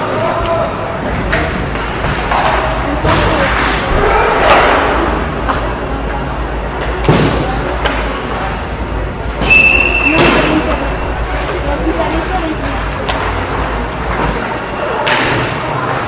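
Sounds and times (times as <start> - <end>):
crowd noise: 0.0 - 16.0
voices: 0.0 - 16.0
hockey sticks knocking puck: 1.3 - 3.9
short high whistle blast: 9.5 - 10.3.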